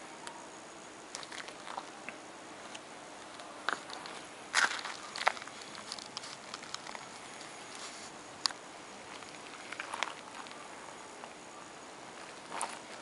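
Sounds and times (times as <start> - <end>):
dry grass and leaves rustling: 1.1 - 13.0.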